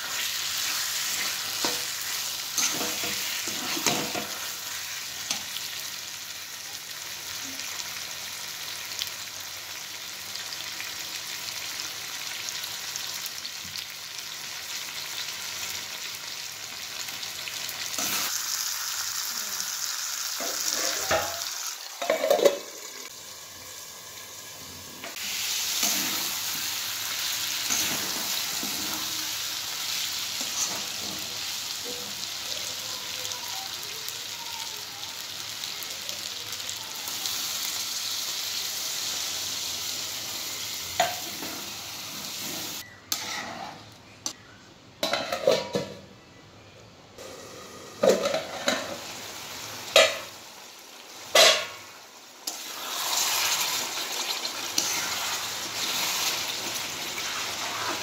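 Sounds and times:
curry sizzling: 0.0 - 44.4, 47.2 - 58.0
metal spatula scraping pan: 42.4 - 44.0, 54.7 - 56.6.

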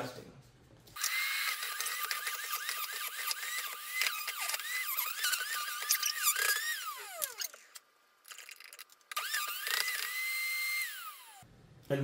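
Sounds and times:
electric juicer motor whining: 1.0 - 5.8, 6.5 - 7.5, 9.2 - 11.4.

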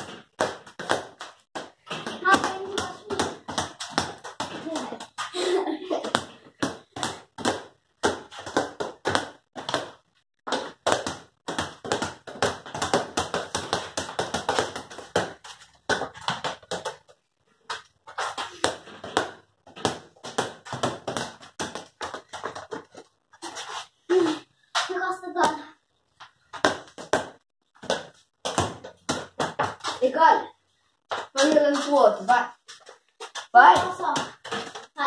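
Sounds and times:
rubber balls bouncing on concrete: 0.0 - 35.0.

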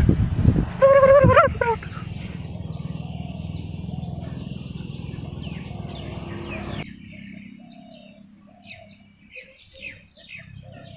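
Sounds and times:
loud low rumbling: 0.0 - 7.5
birds chirping: 0.0 - 10.9
lower bird notes: 0.0 - 10.9.

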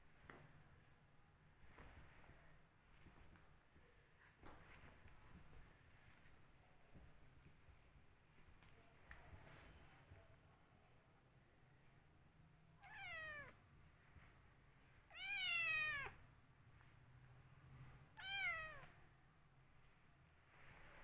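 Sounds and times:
cat meowing: 12.8 - 13.6, 15.1 - 16.2, 18.2 - 19.0.

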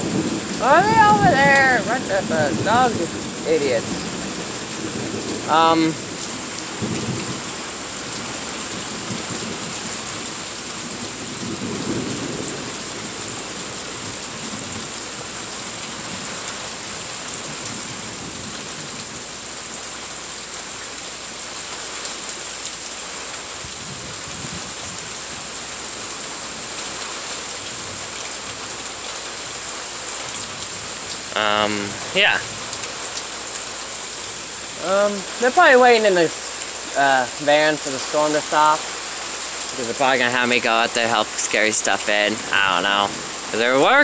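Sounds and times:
thunder rumbling: 0.0 - 10.2
steady rain: 0.0 - 44.0.

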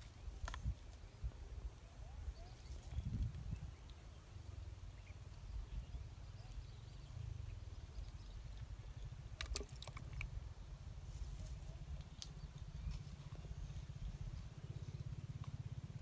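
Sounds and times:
small clicks and rustles: 0.0 - 1.1, 9.3 - 10.3.

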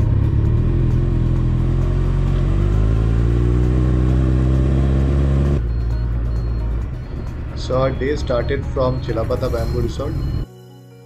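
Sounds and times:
motorcycle engine running: 0.0 - 8.7.

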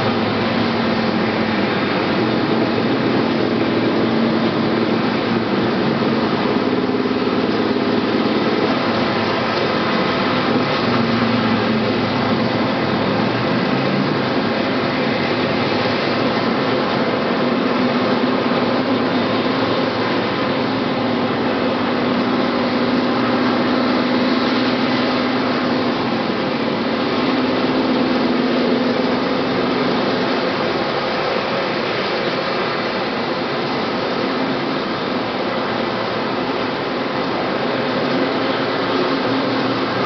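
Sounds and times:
helicopter turbine engines idling: 0.0 - 40.0.

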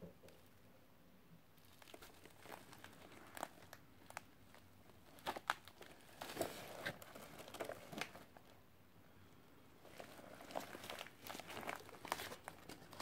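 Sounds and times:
crinkles and clicks: 1.6 - 8.6, 9.8 - 13.0.

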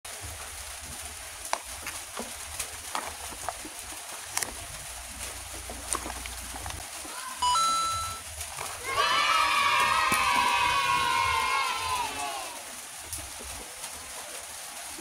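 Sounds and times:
cardboard boxes clicking and crinkling: 1.0 - 7.2.

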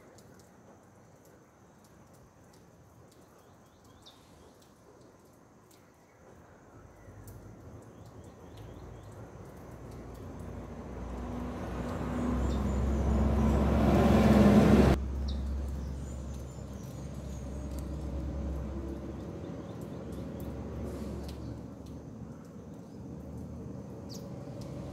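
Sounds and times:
motor vehicle engine rumble: 8.8 - 24.9.

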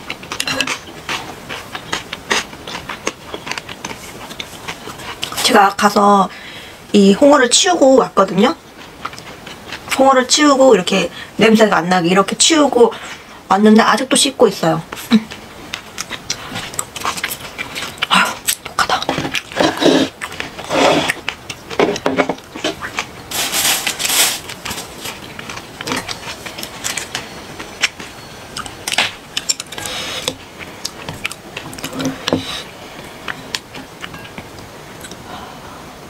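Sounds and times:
chewing: 0.0 - 5.5, 8.6 - 10.0, 14.9 - 35.2
chopsticks and spoon clicking on dishes: 25.4 - 32.4.

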